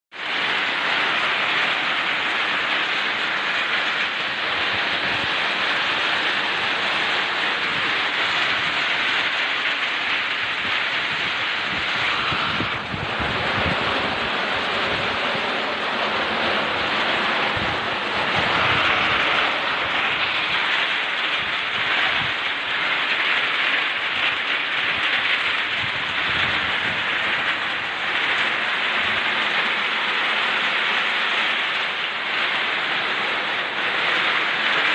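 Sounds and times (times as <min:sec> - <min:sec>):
heavy rain: 0:00.1 - 0:34.9
strong wind: 0:00.1 - 0:34.9.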